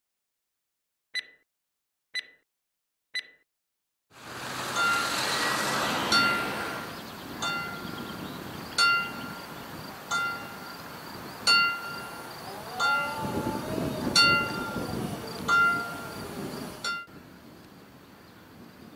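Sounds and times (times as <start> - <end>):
rushing background noise: 4.2 - 18.2
level-crossing bell strokes: 4.7 - 5.1, 11.5 - 17.1.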